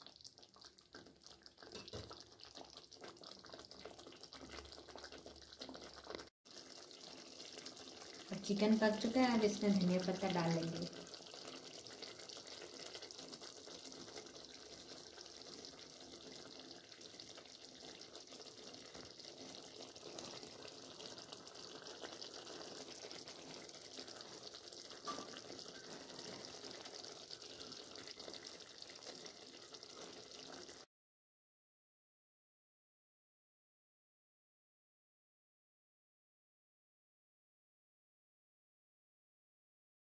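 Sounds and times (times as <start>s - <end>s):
curry bubbling and sizzling: 0.0s - 30.9s.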